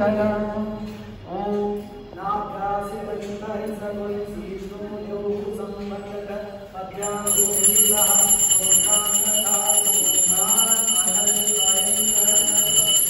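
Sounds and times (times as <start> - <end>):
temple bell ringing: 7.0 - 13.0.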